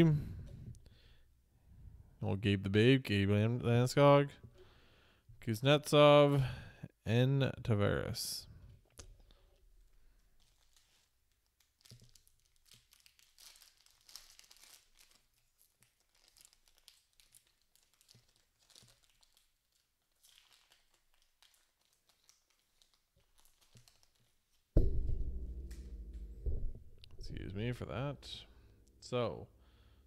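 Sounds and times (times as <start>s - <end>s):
card pack wrapper tearing and crinkling: 10.4s - 24.6s
loud low-pitched sound: 24.8s - 29.1s.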